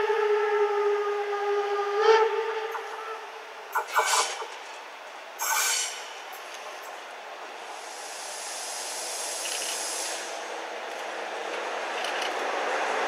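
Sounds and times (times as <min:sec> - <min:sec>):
train horn blast: 0:00.0 - 0:04.4
approaching train rushing: 0:00.0 - 0:13.0.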